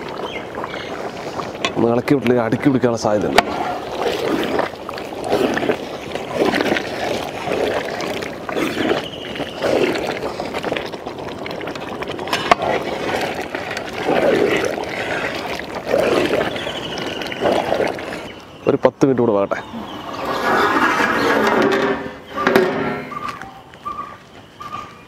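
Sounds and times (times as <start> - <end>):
paddle sloshing through thick curry: 0.0 - 18.7.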